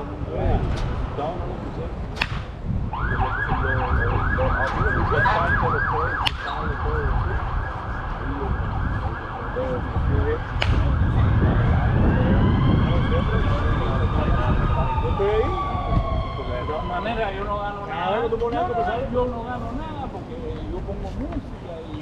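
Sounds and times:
wind rumble on microphone: 0.0 - 22.0
bat hitting baseball: 2.2 - 2.6, 6.2 - 6.6, 10.6 - 10.8
emergency siren yelp and wail: 2.8 - 19.8.

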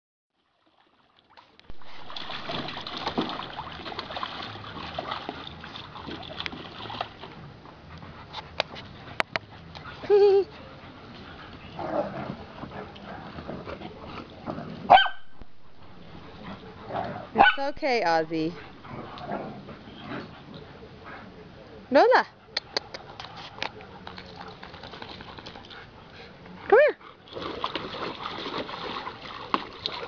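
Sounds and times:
dog splashing in water: 0.6 - 7.4, 27.3 - 30.0
dogs play-fighting: 1.7 - 17.7, 18.3 - 30.0
dog barking: 14.9 - 15.4, 17.4 - 17.6.

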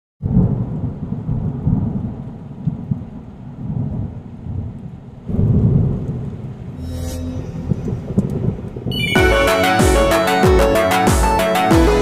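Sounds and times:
deep rumbling thunder: 0.2 - 6.8, 7.6 - 9.0.

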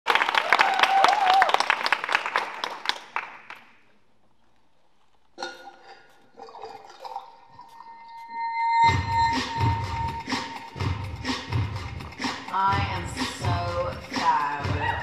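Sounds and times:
people clapping: 0.0 - 3.9.

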